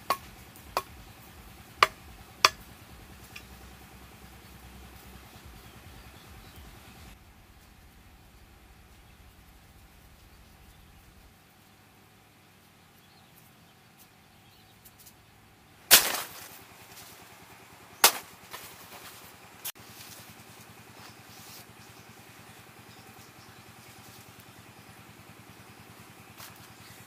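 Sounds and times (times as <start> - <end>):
faint engine hum: 0.0 - 27.0
banana leaf stalks snapping: 15.9 - 16.6, 18.0 - 19.1.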